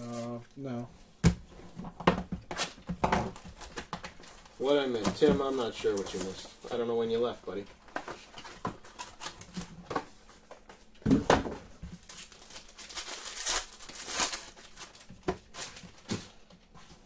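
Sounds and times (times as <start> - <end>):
wrapper crinkling: 12.0 - 16.1.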